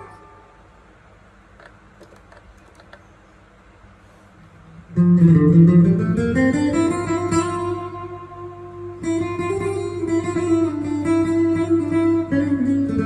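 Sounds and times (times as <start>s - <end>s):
electric guitar with effects: 0.0s - 0.4s, 4.8s - 13.0s.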